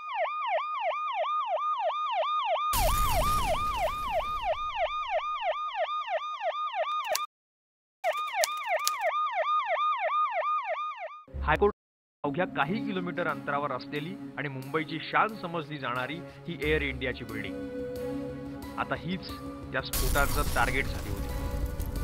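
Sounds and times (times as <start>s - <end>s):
emergency siren yelping: 0.0s - 7.3s, 8.1s - 11.3s
blast booming: 2.8s - 5.0s, 20.0s - 22.0s
sharp clicks: 8.0s - 9.1s.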